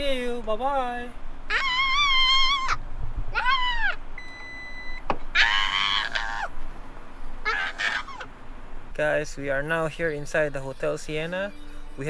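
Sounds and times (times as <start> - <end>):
children squealing: 1.5 - 4.0, 5.3 - 6.6, 7.4 - 8.3.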